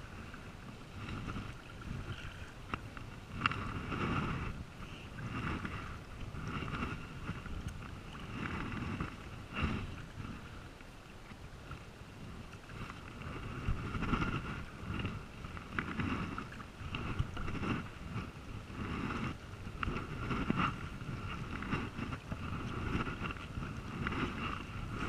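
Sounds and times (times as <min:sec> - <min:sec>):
wind buffeting microphone: 0:00.0 - 0:10.7, 0:11.6 - 0:25.0
paddle splashing in water: 0:00.0 - 0:25.0.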